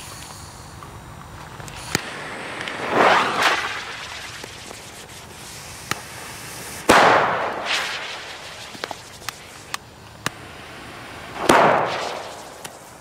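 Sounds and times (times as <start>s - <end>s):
firecracker bang: 6.8s - 9.3s, 11.1s - 13.0s.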